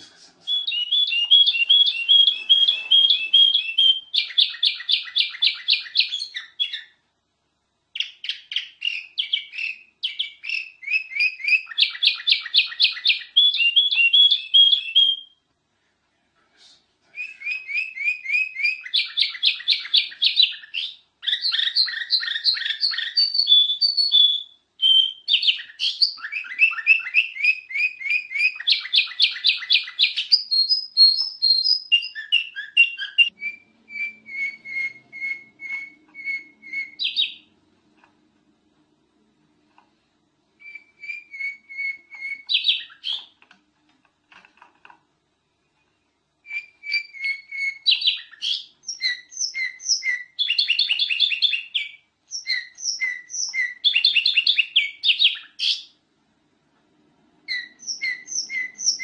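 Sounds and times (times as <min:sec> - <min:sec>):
bulbul singing high chirps: 0:57.5 - 0:59.0.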